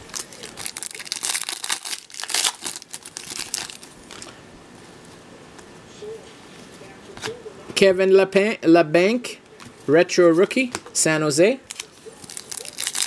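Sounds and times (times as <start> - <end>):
foil wrapper crinkling: 0.0 - 4.4, 11.7 - 13.0.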